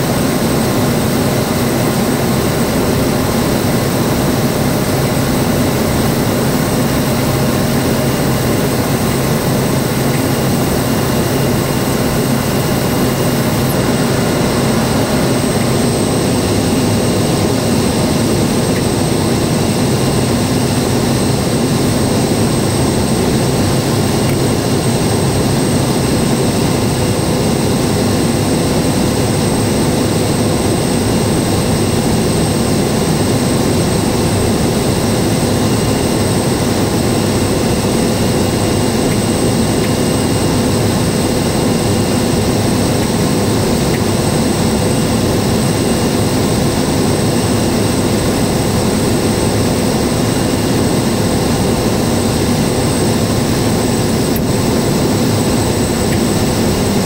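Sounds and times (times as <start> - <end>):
turboprop engine drone with whine: 0.0 - 57.0.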